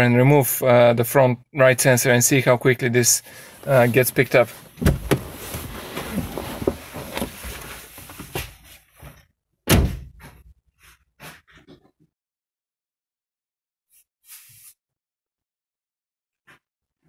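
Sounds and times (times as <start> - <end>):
rustling and shuffling: 3.3 - 9.3
car door slamming: 4.8 - 5.7.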